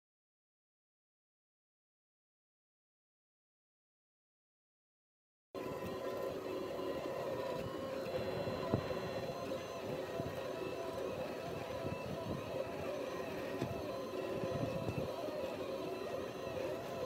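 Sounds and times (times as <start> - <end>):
printer mechanical hum: 5.6 - 17.0.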